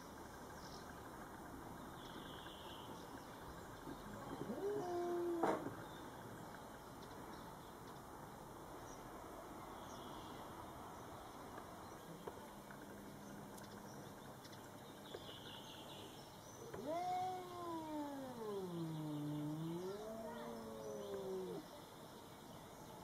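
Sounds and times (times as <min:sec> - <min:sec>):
cat yowling: 0:04.4 - 0:05.5, 0:16.8 - 0:21.7.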